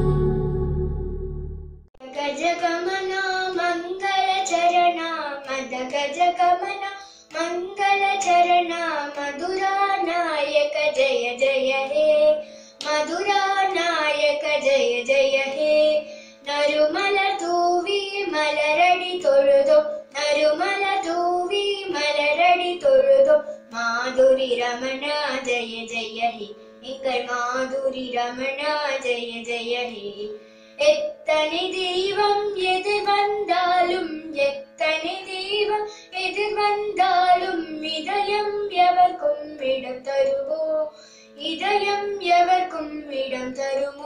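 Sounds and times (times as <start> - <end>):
girl singing: 0.0 - 1.3, 2.0 - 44.0
steady drone: 0.0 - 1.8.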